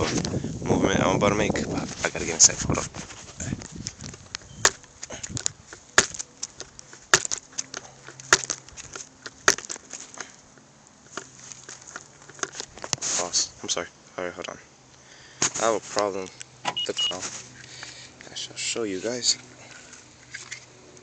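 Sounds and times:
crutches crunching on dry grass: 0.0s - 13.8s, 14.9s - 21.0s.

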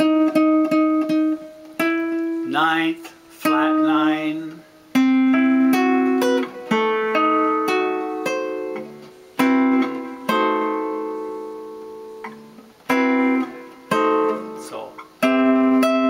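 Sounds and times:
classical guitar playing jazz chords: 0.0s - 16.0s.

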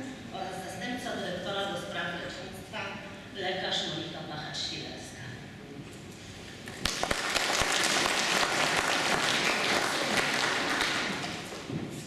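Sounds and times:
audience applauding: 6.8s - 11.6s.

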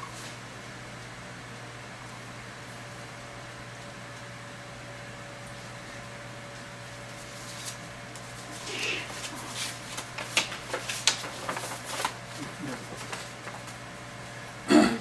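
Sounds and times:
low electrical hum: 0.0s - 15.0s
paper rustling: 7.1s - 13.8s.

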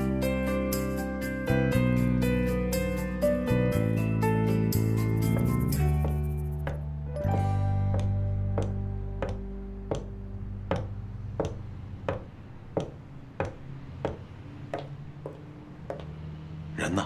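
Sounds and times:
background music: 0.0s - 14.9s
high heels clicking on wooden stairs: 5.3s - 16.3s.

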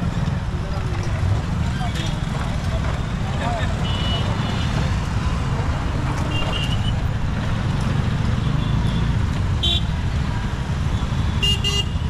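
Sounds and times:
motorcycles and scooters passing: 0.0s - 11.4s.

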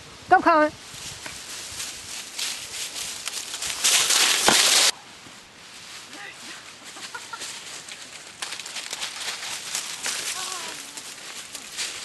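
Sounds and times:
footsteps in dry leaves: 0.8s - 12.0s
dog crashing through dry leaves: 1.8s - 4.9s, 8.4s - 12.0s.

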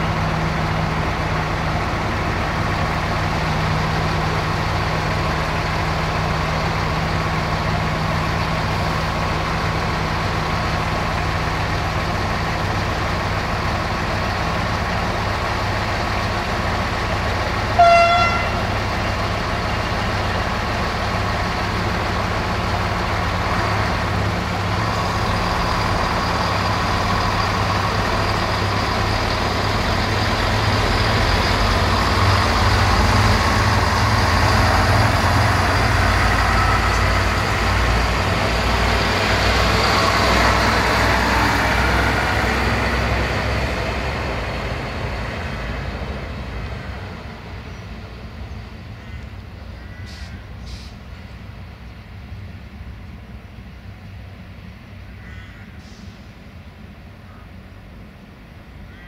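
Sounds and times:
diesel locomotive engines rumbling: 0.0s - 59.0s
short high train horn toot: 17.7s - 18.8s.

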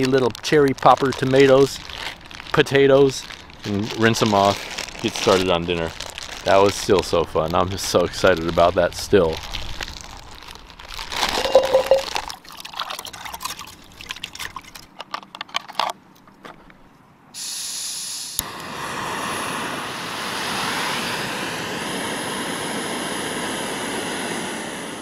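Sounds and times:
gas hissing from burner: 17.4s - 25.0s
stove burner roaring: 17.9s - 25.0s.

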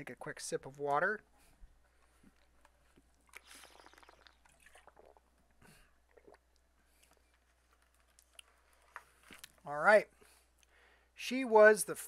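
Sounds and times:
man sipping and swallowing water: 1.3s - 9.6s.

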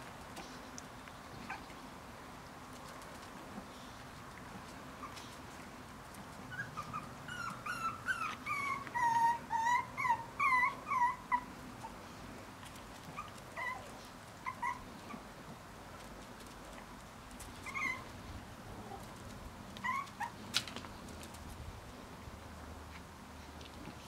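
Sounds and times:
puppies whimpering and yipping: 6.5s - 11.9s, 13.2s - 15.2s, 17.5s - 18.2s, 19.8s - 20.4s.

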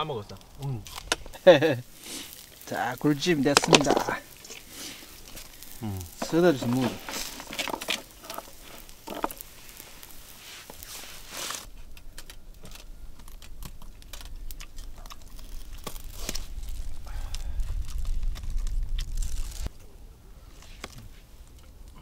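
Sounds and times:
low rumble: 11.7s - 20.5s.

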